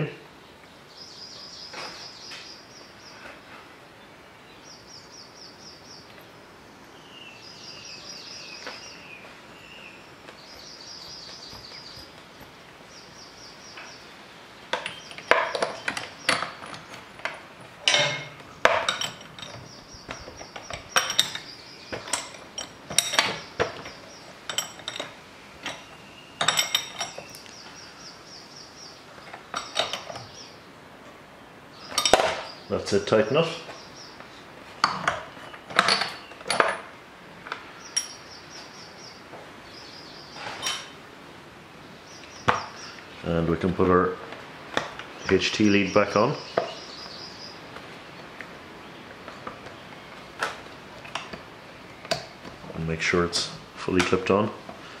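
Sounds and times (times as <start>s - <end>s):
birds singing: 0.0s - 55.0s
metal tools clinking: 10.5s - 12.6s, 14.7s - 27.5s, 29.3s - 30.4s, 31.9s - 32.6s, 34.8s - 36.9s, 37.9s - 38.3s, 40.4s - 41.0s.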